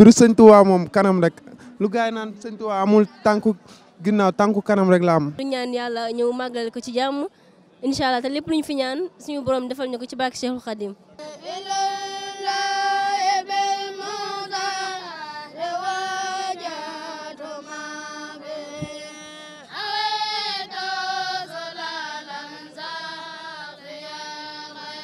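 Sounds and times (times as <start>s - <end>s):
boy singing a chant: 11.2s - 25.0s.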